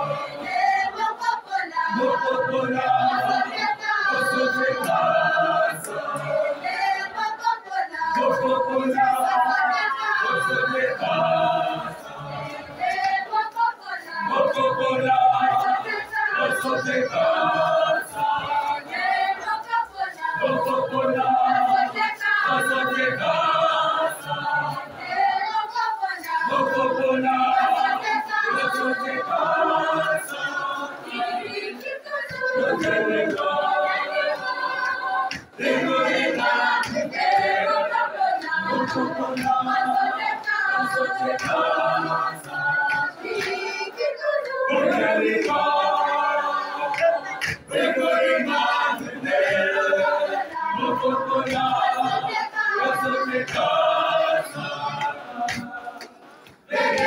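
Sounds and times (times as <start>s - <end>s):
mixed choir singing: 0.0s - 57.0s.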